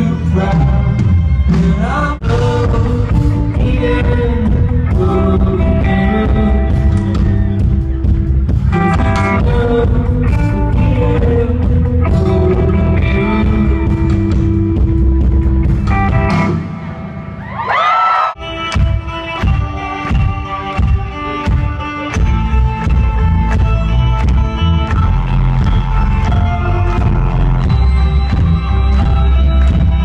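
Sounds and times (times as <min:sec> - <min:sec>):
live rock band playing: 0:00.0 - 0:17.8, 0:18.4 - 0:30.0.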